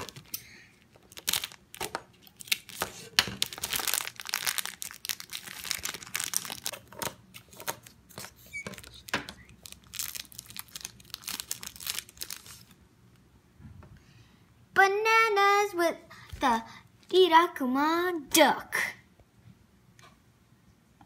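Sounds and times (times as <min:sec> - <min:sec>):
plastic bags crinkling and tearing: 0:00.0 - 0:12.8.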